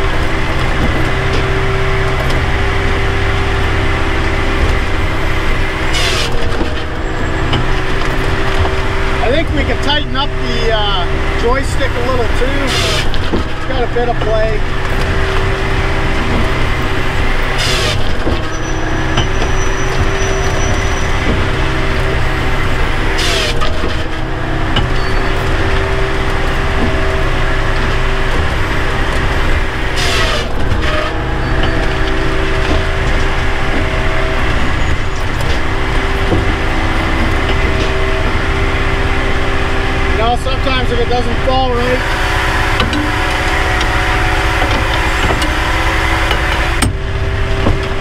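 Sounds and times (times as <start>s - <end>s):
hydraulic machine drone: 0.0s - 48.0s
short sharp machine noises: 11.0s - 14.6s.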